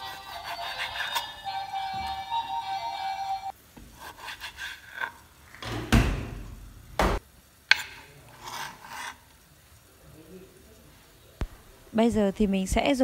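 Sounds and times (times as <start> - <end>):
knife slicing meat on board: 0.0 - 1.3, 3.9 - 5.2, 7.7 - 9.2
background music: 0.0 - 3.5
blade thumping board: 7.0 - 8.0.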